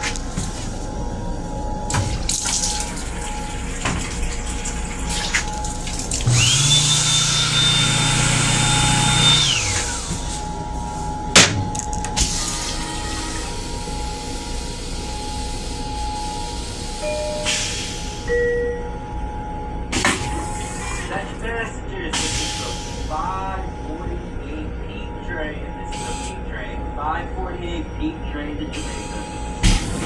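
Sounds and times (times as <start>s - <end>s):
water pump motor humming: 0.0s - 16.4s
water running from faucet: 2.3s - 7.4s.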